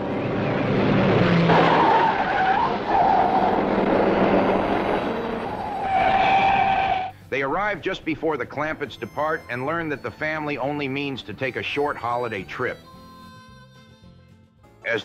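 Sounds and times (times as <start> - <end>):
road and car noise: 0.0 - 7.1.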